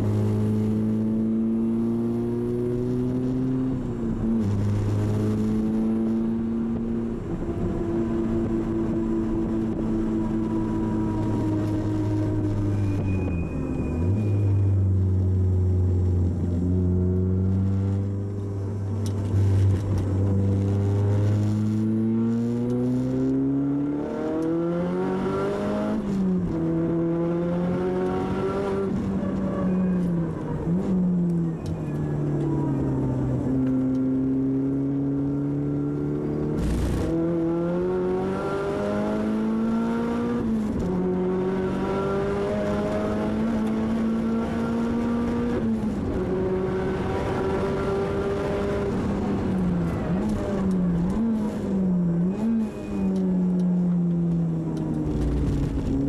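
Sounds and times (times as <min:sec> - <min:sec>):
turbocharged car engine revving: 0:19.0 - 0:29.0, 0:33.8 - 0:56.0.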